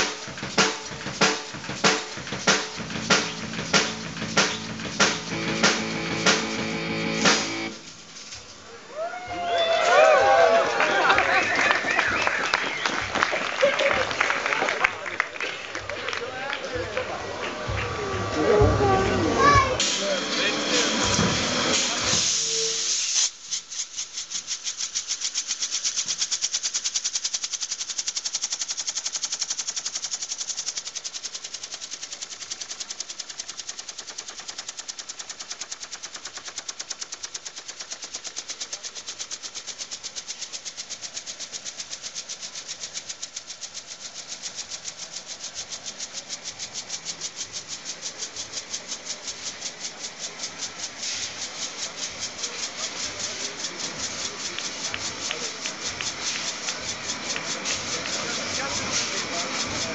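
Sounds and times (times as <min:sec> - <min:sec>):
flame jet hissing puffs: 0:07.2 - 0:08.8, 0:16.7 - 0:26.6, 0:30.1 - 0:59.9.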